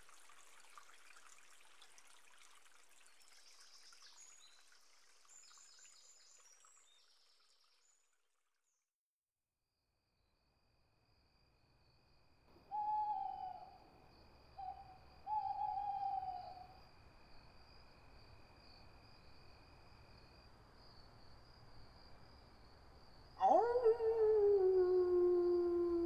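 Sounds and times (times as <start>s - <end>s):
night forest ambience: 0.1s - 8.1s, 10.1s - 26.0s
owl hooting: 12.7s - 13.8s, 14.6s - 16.8s, 23.4s - 26.0s.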